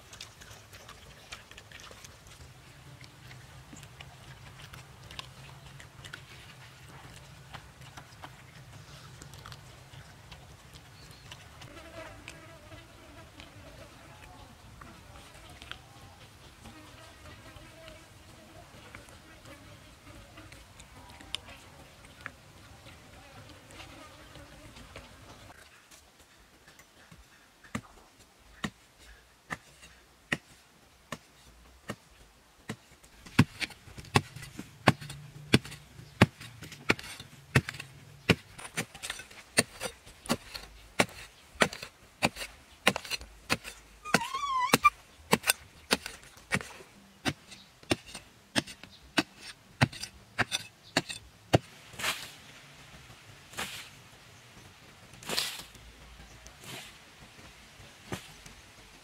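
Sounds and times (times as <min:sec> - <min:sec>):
earth scraping: 0:00.0 - 0:26.0, 0:32.7 - 0:59.0
digging tool chopping into soil: 0:32.7 - 0:52.4, 0:53.5 - 0:54.0, 0:55.1 - 0:55.8.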